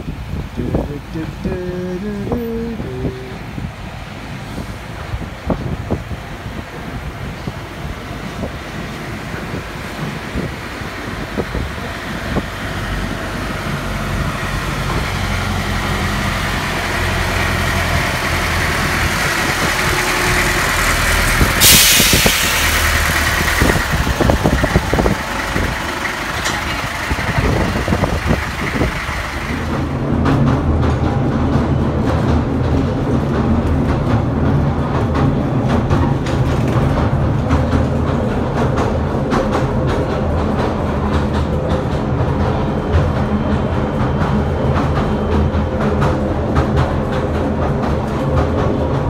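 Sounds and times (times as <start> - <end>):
train rumbling on track: 0.0 - 49.0
wind buffeting microphone: 0.0 - 49.0
loud hiss: 19.7 - 25.8.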